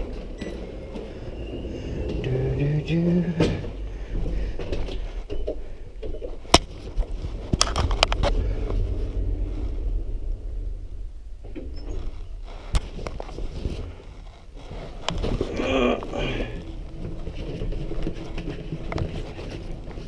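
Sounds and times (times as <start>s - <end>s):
lift car low rumble: 0.0s - 20.0s
sharp clicks and knocks: 3.4s - 8.8s.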